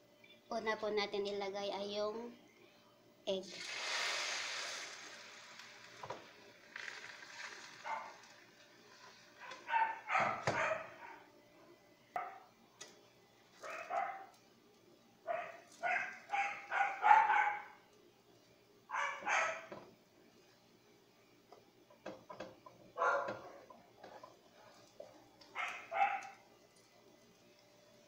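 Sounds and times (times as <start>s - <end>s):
dog barking: 7.8s - 8.2s, 9.4s - 11.3s, 12.2s - 12.5s, 13.6s - 14.4s, 15.3s - 17.8s, 18.9s - 19.8s, 23.0s - 23.7s, 25.5s - 26.4s.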